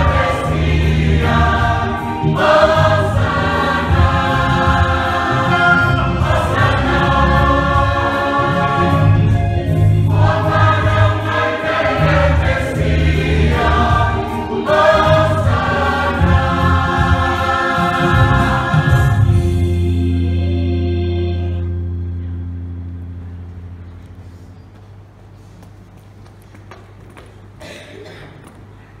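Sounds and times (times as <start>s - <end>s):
choir singing a hymn: 0.0s - 21.8s
low steady notes: 0.0s - 27.6s.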